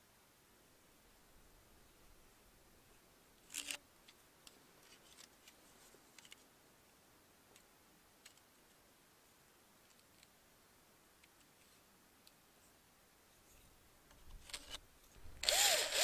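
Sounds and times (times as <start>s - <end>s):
small clicks and ticks: 3.4s - 6.4s, 7.5s - 8.8s, 9.8s - 10.4s.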